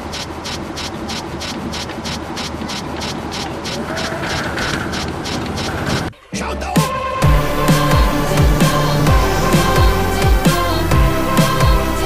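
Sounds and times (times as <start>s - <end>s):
steam locomotive chuffing: 7.2s - 12.0s.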